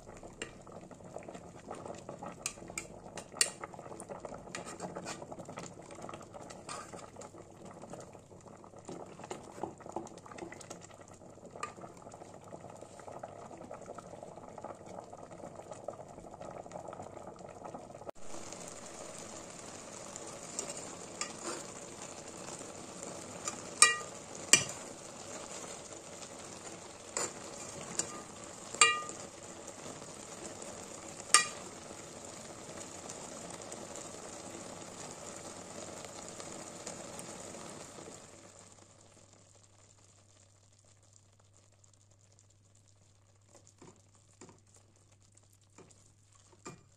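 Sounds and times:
food sizzling: 0:00.0 - 0:46.9
pot simmering and bubbling: 0:00.0 - 0:46.9
metal ladle clinking on pot: 0:23.5 - 0:24.8, 0:27.2 - 0:29.2, 0:31.4 - 0:31.6.

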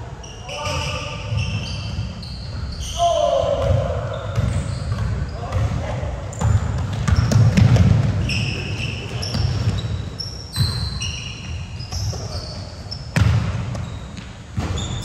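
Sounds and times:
sneaker squeaks: 0:00.1 - 0:15.0
basketball bouncing on gym floor: 0:03.4 - 0:15.0.

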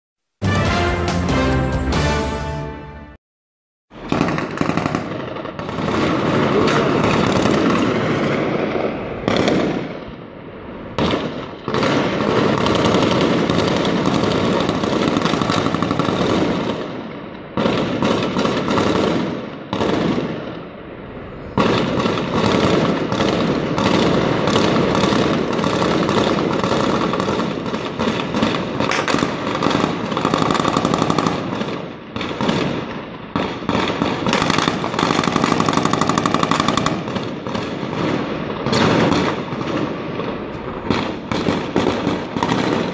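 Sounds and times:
rapid automatic gunfire: 0:04.0 - 0:08.6, 0:21.6 - 0:32.7, 0:33.4 - 0:38.1.

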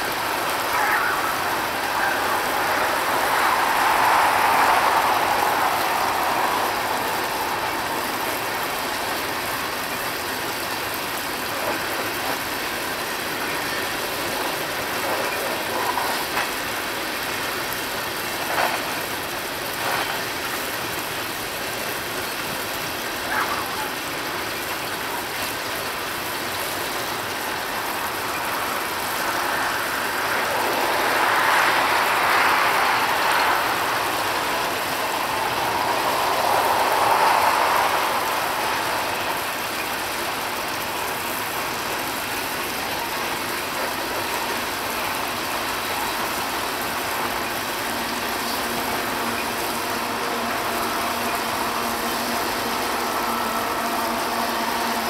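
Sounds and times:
car passing by: 0:00.0 - 0:21.5, 0:26.5 - 0:55.0
train wheels rumbling and clattering: 0:02.3 - 0:23.0.

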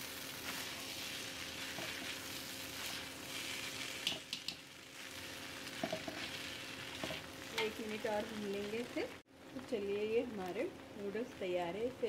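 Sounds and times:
noodles sizzling in a wok: 0:00.0 - 0:12.0
spatula clicking on pan: 0:04.0 - 0:04.6.

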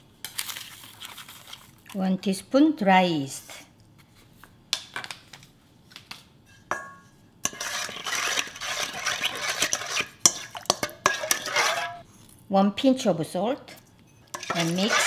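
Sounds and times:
spoon scraping metal bowl: 0:07.4 - 0:12.0, 0:14.3 - 0:15.0.

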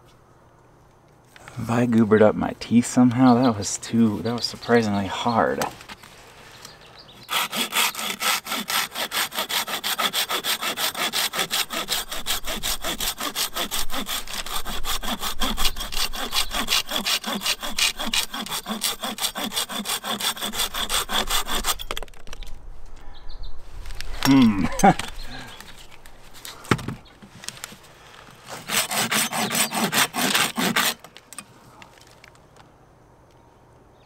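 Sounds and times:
hand saw cutting branch: 0:07.2 - 0:22.0, 0:28.4 - 0:31.1.

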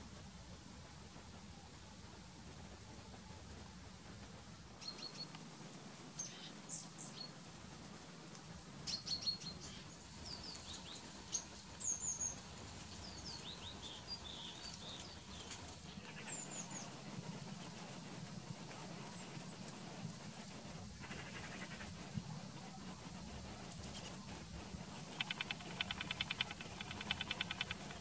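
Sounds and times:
faint low hum: 0:00.0 - 0:28.0
songbirds chirping and trilling: 0:08.8 - 0:17.9.

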